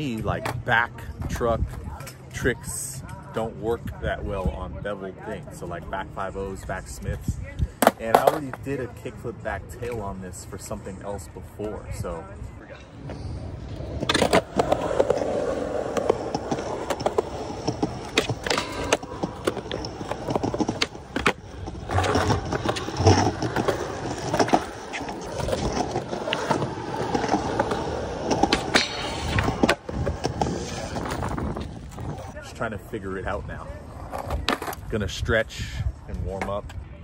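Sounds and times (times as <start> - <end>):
skateboard rolling on concrete: 0.0 - 37.0
skateboard clacking on ground: 7.6 - 8.9, 13.8 - 32.4, 33.9 - 34.8.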